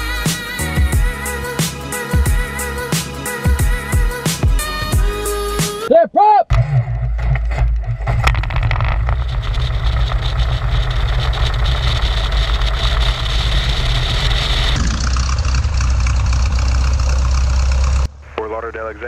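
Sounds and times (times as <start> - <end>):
propeller engine idling: 9.1 - 19.0.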